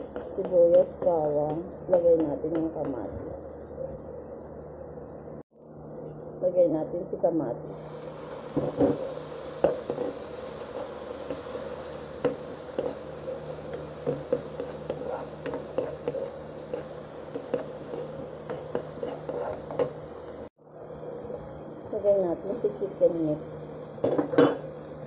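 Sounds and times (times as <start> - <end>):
steady low hum: 0.0 - 25.0
vegetables sizzling in oil: 7.8 - 20.5
spatula scraping and tapping pan: 12.2 - 20.0.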